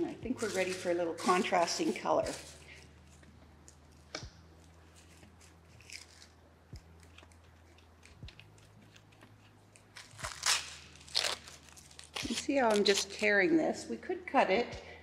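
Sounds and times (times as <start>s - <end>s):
paper tearing: 0.4s - 2.6s, 5.0s - 6.4s, 7.0s - 13.3s.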